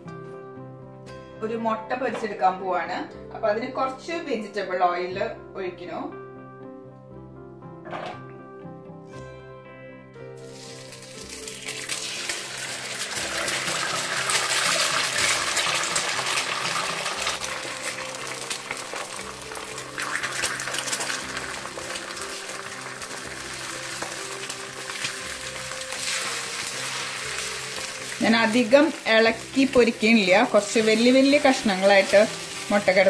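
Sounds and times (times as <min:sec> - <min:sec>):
egg sizzling in hot oil: 0:10.4 - 0:33.0.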